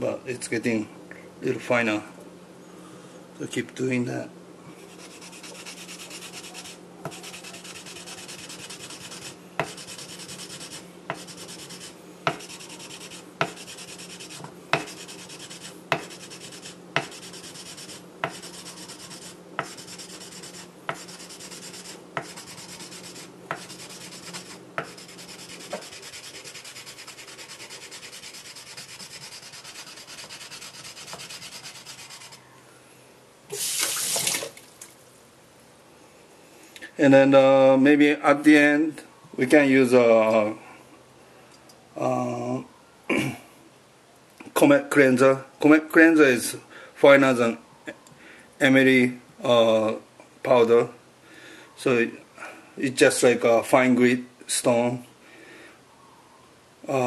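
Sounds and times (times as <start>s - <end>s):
wood rubbing on knife blade: 4.9s - 32.5s.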